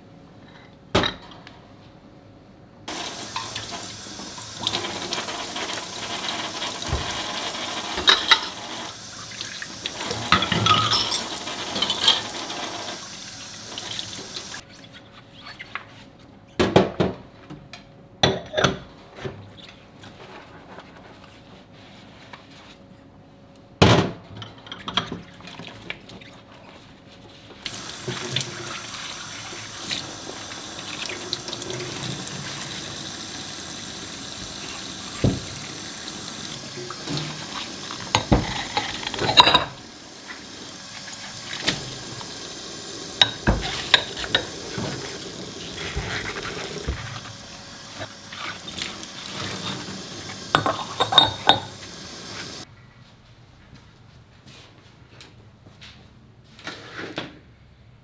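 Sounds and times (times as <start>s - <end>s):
tap running into sink: 2.9s - 8.6s, 34.3s - 39.8s, 43.1s - 47.3s
dishes clinking and knocking: 7.9s - 8.6s, 10.2s - 12.3s, 38.1s - 39.8s, 43.2s - 45.1s, 50.5s - 51.8s.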